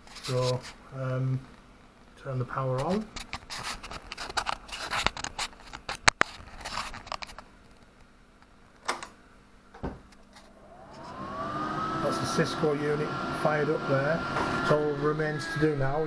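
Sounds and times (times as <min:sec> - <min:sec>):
power supply fan whine: 0:00.2 - 0:16.0
camera handling clicks and rustles: 0:03.2 - 0:07.4.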